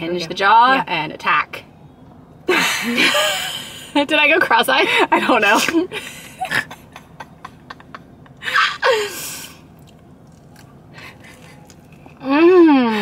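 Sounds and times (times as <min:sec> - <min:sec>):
person chewing a burger: 0:09.6 - 0:12.2.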